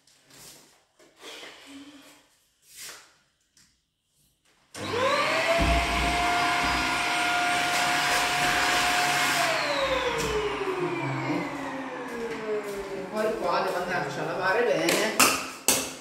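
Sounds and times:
vacuum cleaner motor whine: 4.8 - 14.7.

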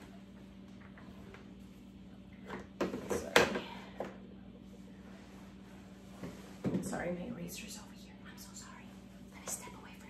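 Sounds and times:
steady low hum: 0.0 - 10.0
objects clattering on a desk: 2.4 - 4.2.

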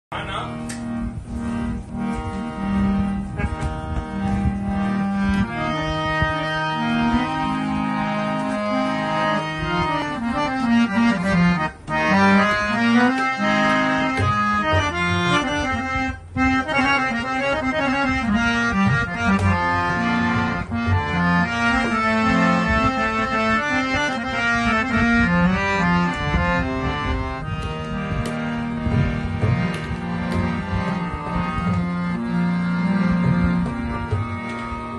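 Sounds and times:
harmonium playing melody: 0.1 - 34.9
tabla: 0.2 - 34.9.

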